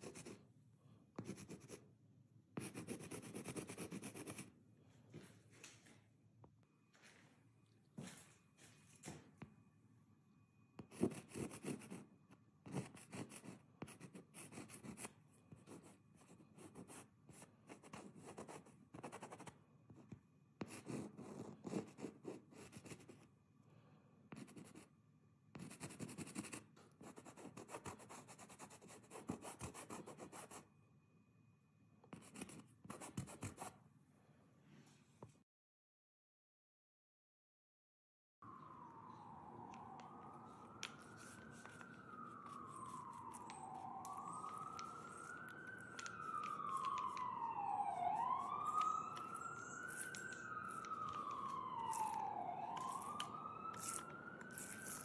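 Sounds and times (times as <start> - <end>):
chalk scratching on canvas: 53.8 - 55.0.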